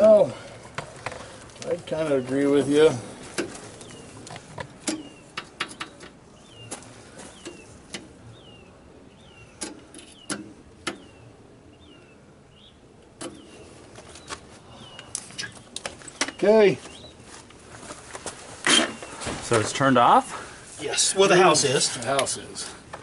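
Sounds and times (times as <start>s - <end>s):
bird chirping: 1.8s - 17.3s.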